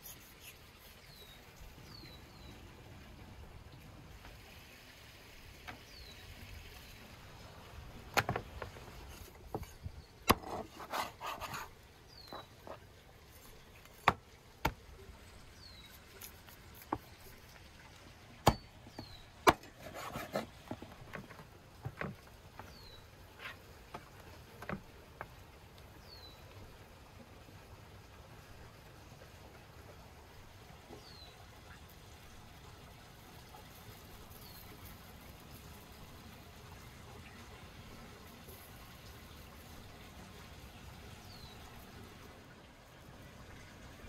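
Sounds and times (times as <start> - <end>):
knife rasping through meat: 0.0 - 1.0, 10.5 - 11.7, 15.8 - 17.4, 19.6 - 20.6.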